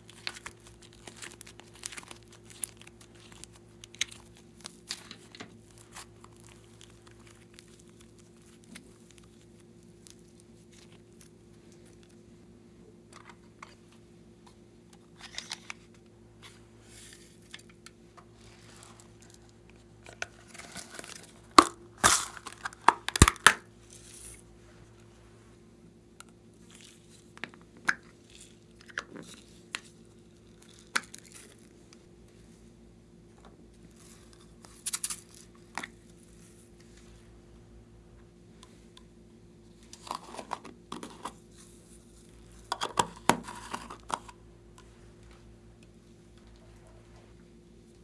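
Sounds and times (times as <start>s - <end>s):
faint steady hum: 0.0s - 48.0s
plastic tubs clicking and crinkling: 42.7s - 44.4s.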